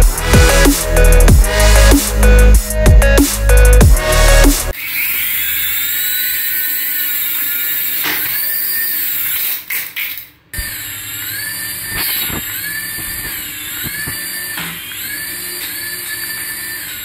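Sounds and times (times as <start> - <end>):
toy helicopter motors whining: 4.7 - 17.0.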